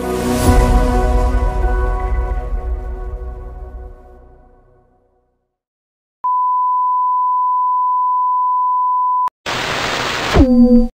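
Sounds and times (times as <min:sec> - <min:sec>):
steady pure test tone beep: 0:06.2 - 0:09.3
hissing static: 0:09.5 - 0:10.9.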